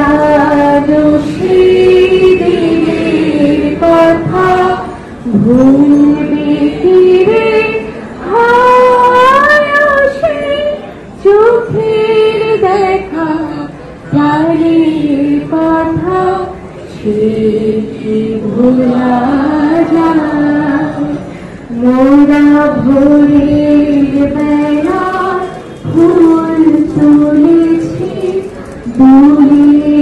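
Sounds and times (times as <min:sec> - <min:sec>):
young men singing together: 0:01.4 - 0:04.3.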